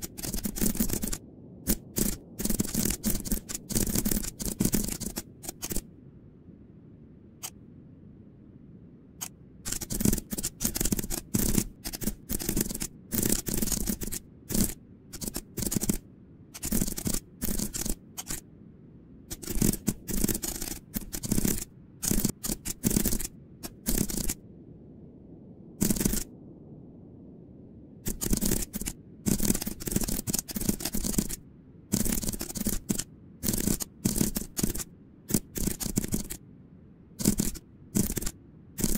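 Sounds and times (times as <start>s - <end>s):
keyboard typing: 0.0s - 5.8s, 9.2s - 16.0s, 16.6s - 18.4s, 19.3s - 24.4s, 25.8s - 26.3s, 28.0s - 36.4s, 37.2s - 38.9s.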